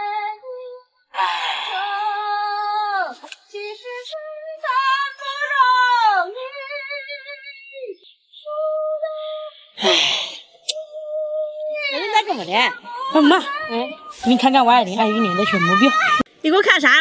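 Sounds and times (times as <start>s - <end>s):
high voice singing held notes: 1.2s - 4.0s, 8.5s - 16.3s.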